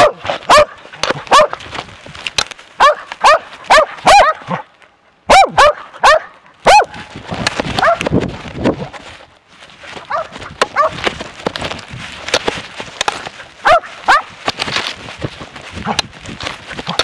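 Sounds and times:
dog barking sharply: 0:00.0 - 0:01.6, 0:02.8 - 0:04.6, 0:05.3 - 0:07.0, 0:13.6 - 0:14.3
scuffling through brush: 0:00.0 - 0:17.0.

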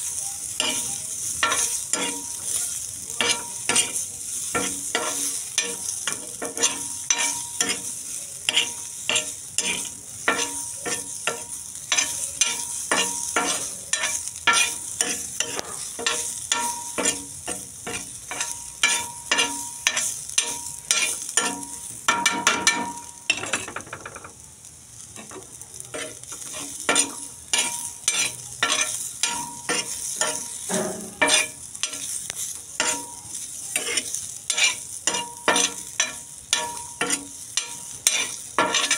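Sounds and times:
spatula scraping in a wok: 0:00.0 - 0:24.3, 0:25.0 - 0:38.9
hot oil sizzling: 0:00.0 - 0:38.9.

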